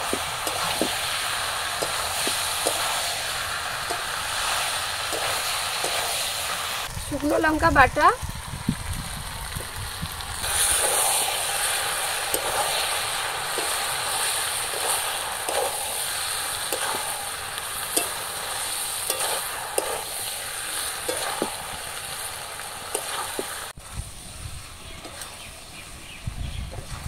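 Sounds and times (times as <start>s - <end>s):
food sizzling in oil: 0.0s - 27.0s
metal spatula scraping pan: 19.0s - 20.1s.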